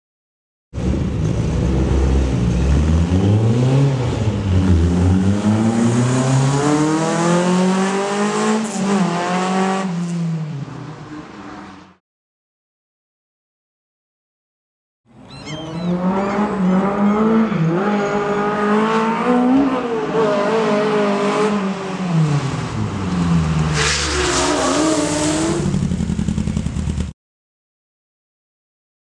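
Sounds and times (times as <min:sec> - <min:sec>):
car engine revving: 0:00.8 - 0:10.6, 0:15.8 - 0:27.1
rush of tyre noise: 0:00.8 - 0:12.0, 0:15.9 - 0:27.1
tyre squeal: 0:15.2 - 0:18.4.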